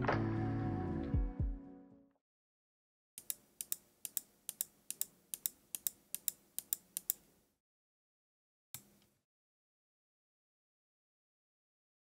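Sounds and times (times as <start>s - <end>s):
mouse buttons clicking: 3.2s - 7.3s.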